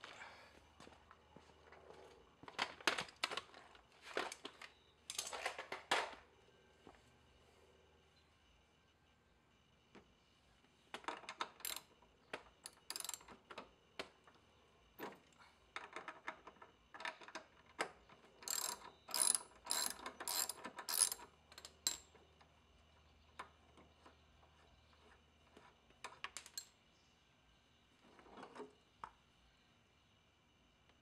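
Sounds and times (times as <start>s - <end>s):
socket ratchet clicking: 11.6s - 11.9s, 12.7s - 13.3s, 18.4s - 22.0s.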